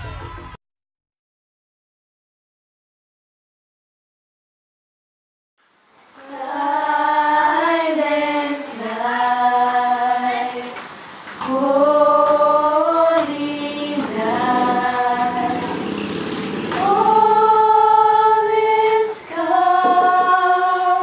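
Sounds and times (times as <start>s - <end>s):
girls singing a carol: 6.0s - 16.0s, 16.7s - 21.0s.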